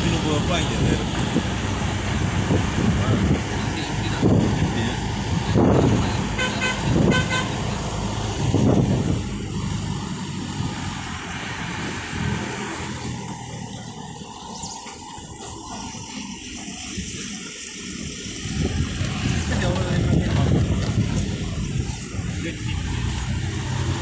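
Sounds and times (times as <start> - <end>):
road and wind noise: 0.0 - 24.0
vehicle horn blasts: 6.3 - 7.7.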